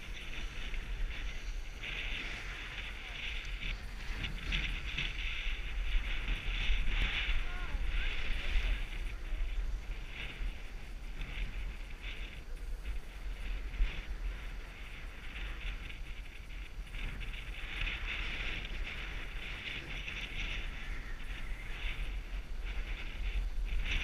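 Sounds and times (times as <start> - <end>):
skis scraping over snow: 0.0 - 24.0
wind on microphone: 0.0 - 24.0.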